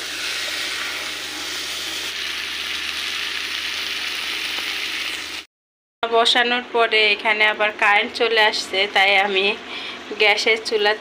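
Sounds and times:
fish sizzling in hot oil: 0.0 - 5.5.

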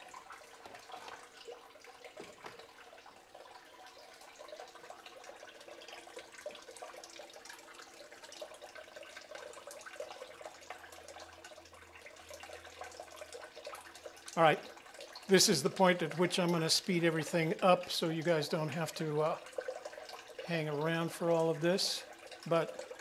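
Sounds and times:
hose dripping: 0.0 - 23.0
water trickling and splashing: 0.0 - 23.0.

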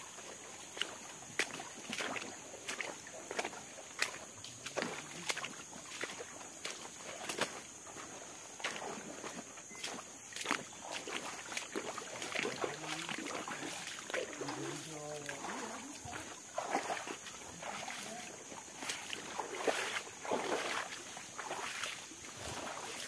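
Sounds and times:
footsteps wading through stream: 0.0 - 23.0
water sloshing and splashing: 0.0 - 23.0
person talking: 12.4 - 16.3, 17.6 - 18.4.

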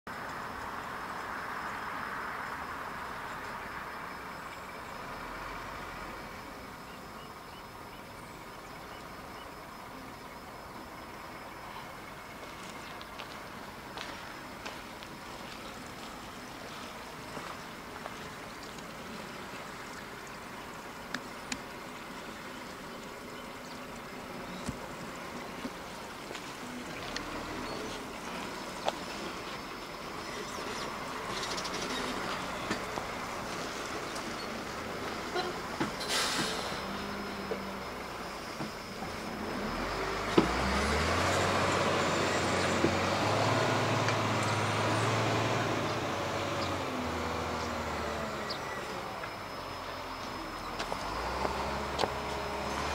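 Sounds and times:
distant road traffic: 0.1 - 52.9
rushing outdoor background noise: 0.1 - 52.9
faint ticks: 21.0 - 29.1.

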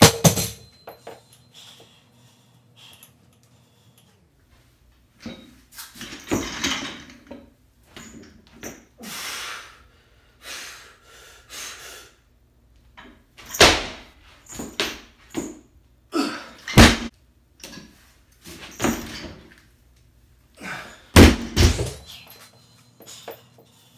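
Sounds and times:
hard breathing: 1.2 - 4.4
barbell plates clanking and thudding: 5.2 - 8.9, 18.6 - 19.5, 21.2 - 22.2.

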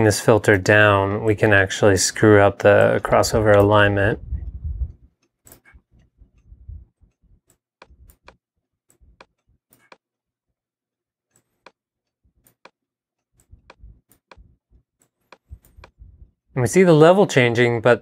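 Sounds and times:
computer mouse clicking: 12.4 - 16.0.

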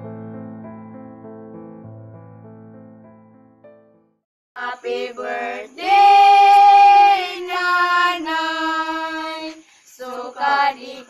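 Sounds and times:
soft piano music: 0.0 - 4.2.

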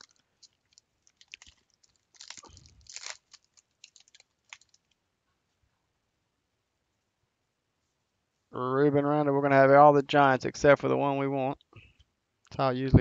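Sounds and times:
plastic packaging rustling: 0.0 - 5.0.

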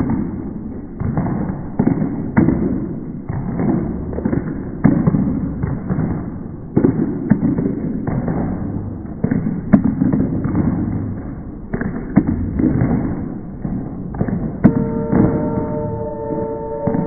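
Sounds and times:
rumbling noise: 0.0 - 17.0
sharp knocks: 11.8 - 17.0
steady multi-pitched tone: 14.6 - 17.0.

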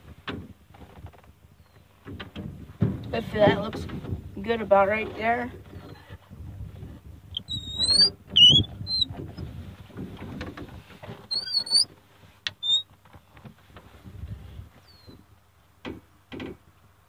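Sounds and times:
small knocks and rattles: 0.0 - 14.2, 15.0 - 16.7
bird chirps: 7.4 - 9.1, 12.6 - 12.8.

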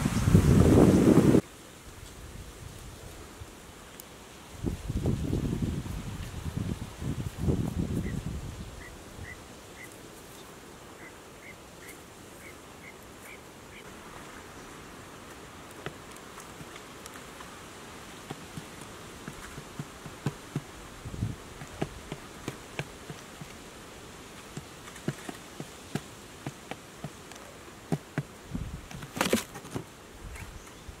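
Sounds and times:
quail pecking grain on board: 15.2 - 30.5
bird scuffle with low thump: 18.2 - 23.6, 24.4 - 30.8.

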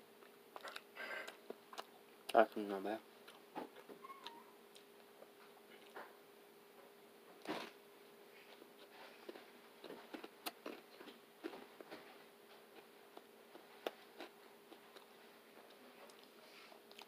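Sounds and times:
faint steady hum: 0.0 - 17.0
person chewing crunchy food: 0.2 - 2.3, 3.2 - 6.0, 8.8 - 17.0.

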